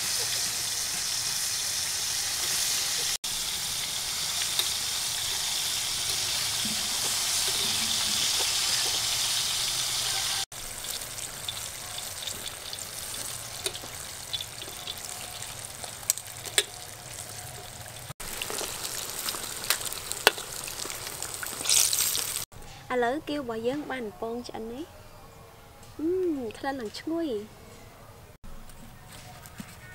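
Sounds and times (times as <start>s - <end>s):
food deep-frying in hot oil: 0.0s - 22.5s.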